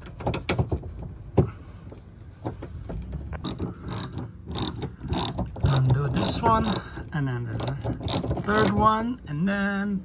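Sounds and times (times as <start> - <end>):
metal tool clicks and knocks: 2.4 - 8.9
socket ratchet clicking: 3.4 - 6.9, 7.6 - 8.9.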